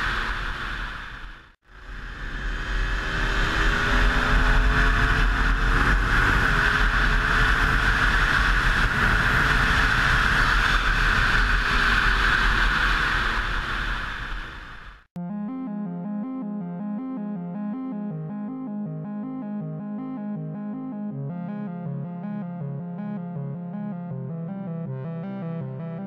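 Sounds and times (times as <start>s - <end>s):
wind rush on microphone: 0.0s - 15.0s.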